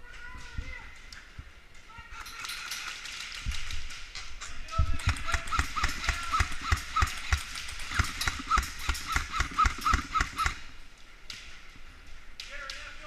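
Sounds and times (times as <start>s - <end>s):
airsoft guns firing: 4.8s - 10.8s.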